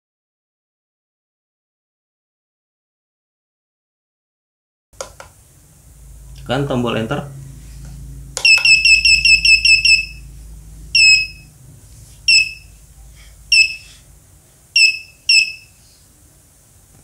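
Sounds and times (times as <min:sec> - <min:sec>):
electronic buzzer beeps: 0:08.4 - 0:11.6, 0:12.3 - 0:12.8, 0:13.5 - 0:13.9, 0:14.8 - 0:15.8.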